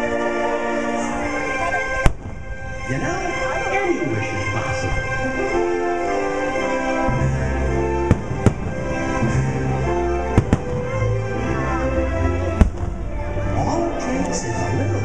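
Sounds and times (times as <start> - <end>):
firework shells bursting: 8.1 - 9.2, 10.4 - 11.1.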